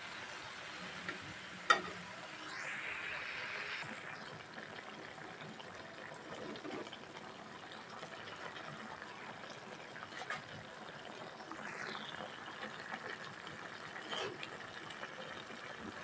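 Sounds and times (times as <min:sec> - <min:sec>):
sauce bubbling in a pan: 0:03.8 - 0:16.0.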